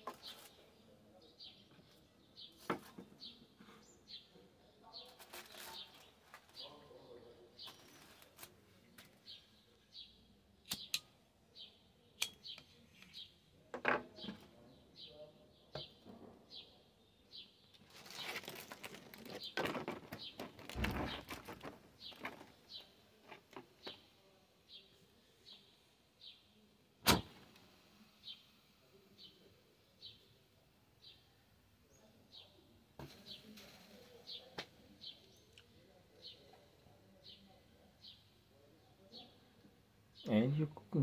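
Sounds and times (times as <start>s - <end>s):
aluminium foil crinkling: 5.0s - 6.7s, 7.6s - 9.1s, 17.7s - 22.5s
handling clicks and knocks: 18.9s - 22.6s.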